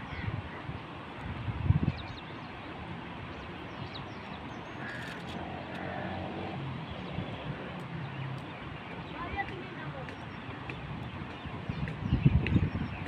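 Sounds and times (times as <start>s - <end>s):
outdoor background noise: 0.0s - 13.0s
bird calling: 4.2s - 5.4s.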